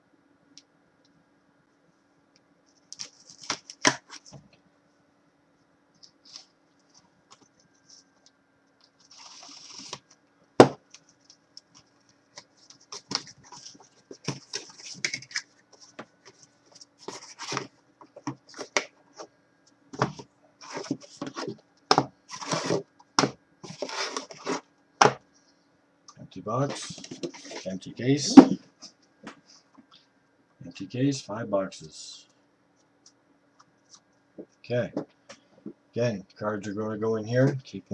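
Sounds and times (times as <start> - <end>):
cardboard scraping and rustling: 9.0 - 10.1, 12.6 - 19.3, 20.0 - 22.9, 23.6 - 24.7, 26.7 - 27.7.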